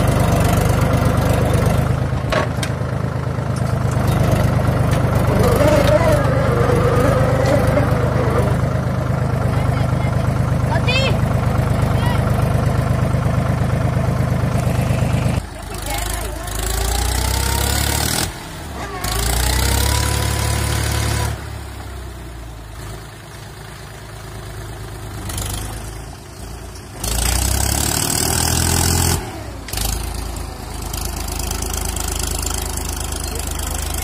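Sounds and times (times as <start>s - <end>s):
tractor diesel engine under load: 0.0s - 34.0s.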